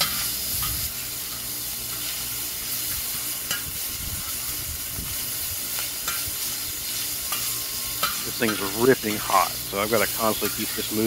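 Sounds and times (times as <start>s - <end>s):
bacon sizzling: 0.0s - 11.0s
metal spatula scraping: 6.0s - 11.0s.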